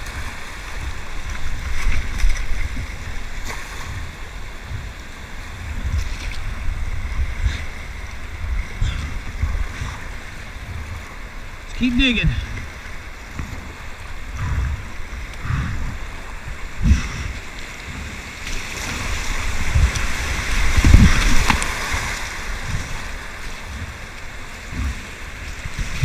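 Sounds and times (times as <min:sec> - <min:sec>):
whitewater rushing: 0:00.0 - 0:26.0
low thumps: 0:03.8 - 0:18.3, 0:19.4 - 0:21.7, 0:24.6 - 0:26.0.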